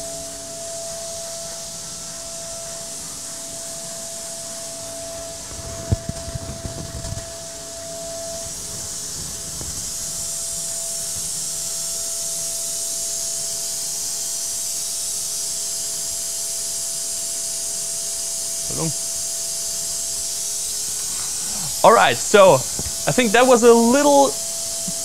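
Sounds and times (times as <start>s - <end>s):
milling machine cutting hiss: 1.5s - 25.0s
steady mid-pitched tone: 21.2s - 25.0s.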